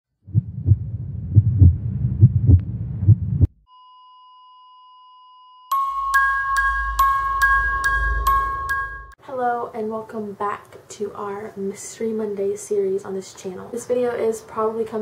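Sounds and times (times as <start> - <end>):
deep low thumps: 0.2 - 3.6
music with mallet notes: 5.7 - 9.2.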